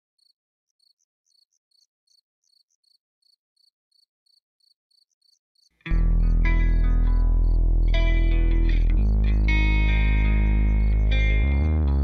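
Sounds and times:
crickets chirping: 0:00.2 - 0:05.7
band music with electric guitar: 0:05.9 - 0:12.0.

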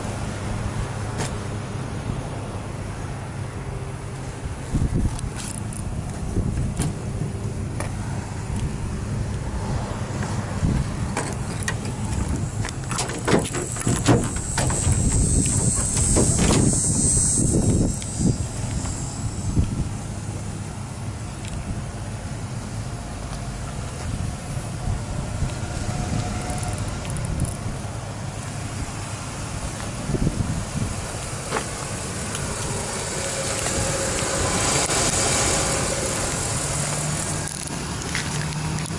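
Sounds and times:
steady low rumble: 0:00.0 - 0:38.9
engine idling: 0:10.8 - 0:25.2
tailgate handle clicks: 0:11.1 - 0:16.7
broad steady hiss: 0:11.9 - 0:25.1, 0:27.7 - 0:38.9.

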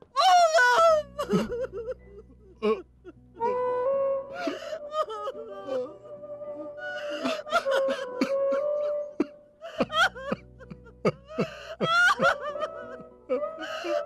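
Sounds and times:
man sobbing: 0:00.2 - 0:03.7, 0:06.9 - 0:14.0.

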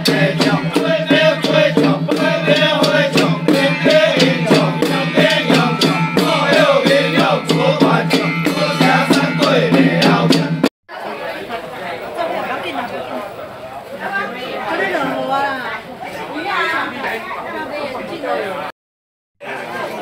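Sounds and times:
men chanting in unison: 0:00.0 - 0:10.6
hand drum strikes: 0:00.0 - 0:10.7.

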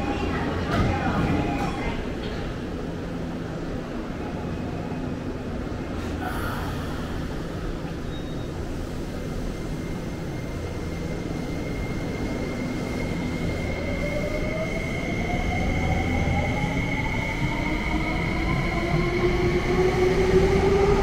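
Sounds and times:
electric train low hum: 0:00.0 - 0:21.0.

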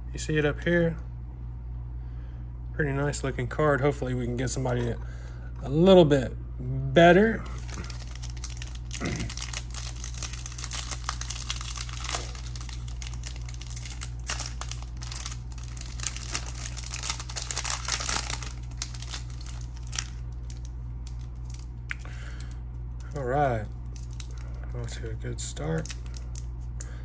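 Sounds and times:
steady low hum: 0:00.0 - 0:27.0
foil pack tearing and crinkling: 0:07.4 - 0:25.0, 0:25.7 - 0:26.6.

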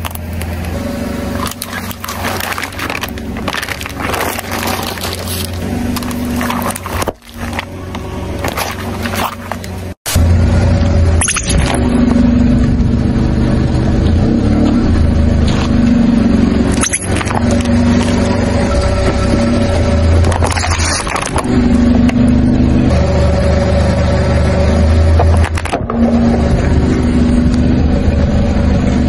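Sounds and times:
car engine running low: 0:00.0 - 0:29.0
plastic objects bursting under tyre: 0:01.3 - 0:09.8, 0:16.7 - 0:18.5, 0:19.1 - 0:22.2, 0:25.1 - 0:26.4.

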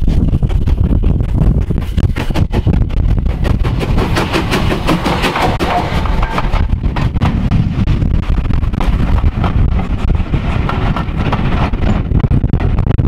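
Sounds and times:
wind buffeting microphone: 0:00.0 - 0:13.0
coaches rumbling over rails: 0:02.7 - 0:12.8
steam locomotive passing: 0:03.4 - 0:07.9.

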